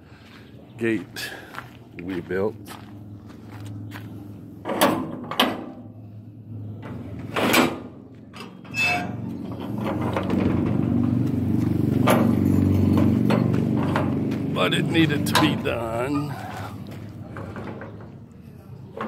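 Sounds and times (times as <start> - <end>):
engine running: 1.2 - 18.4.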